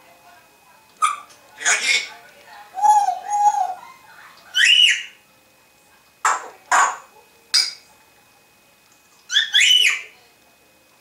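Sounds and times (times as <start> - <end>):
parrot whistled calls: 4.5 - 5.2, 9.3 - 10.1.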